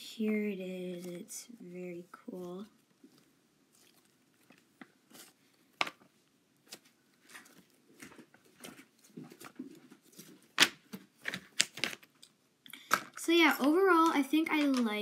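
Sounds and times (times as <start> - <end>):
slime squelching and popping: 2.0 - 12.9.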